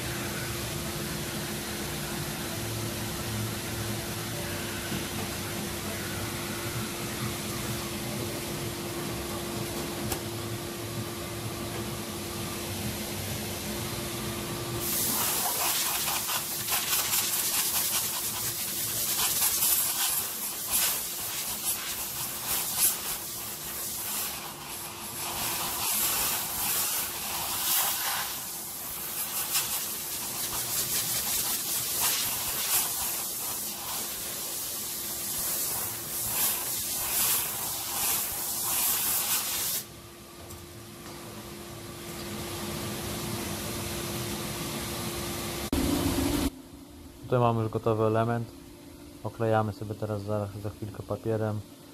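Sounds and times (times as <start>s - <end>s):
low workshop hum: 0.0s - 51.9s
hand sanding scratchy strokes: 14.8s - 39.8s.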